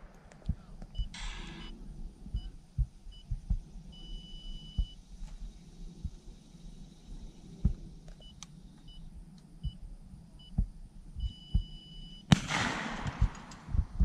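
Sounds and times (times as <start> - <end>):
short electronic beeps: 0.9 - 1.8, 2.4 - 5.0, 11.2 - 12.3
shotgun shot: 12.3 - 13.8.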